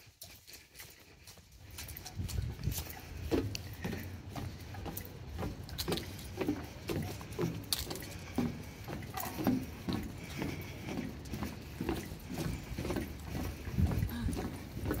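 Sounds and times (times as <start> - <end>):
footsteps on trail: 0.0 - 15.0.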